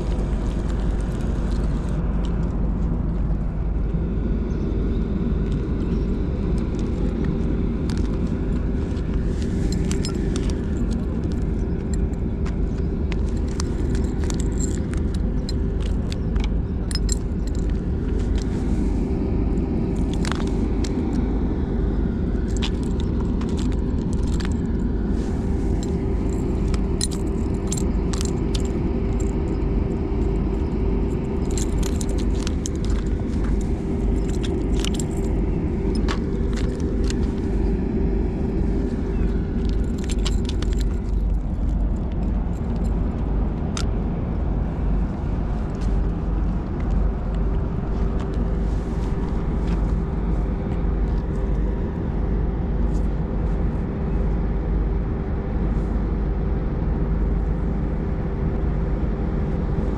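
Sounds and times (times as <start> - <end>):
constant hum: 0.0 - 59.9
low rumble: 0.0 - 59.9
small metallic clicks and clinks: 6.6 - 18.9, 22.4 - 37.5, 39.1 - 43.0.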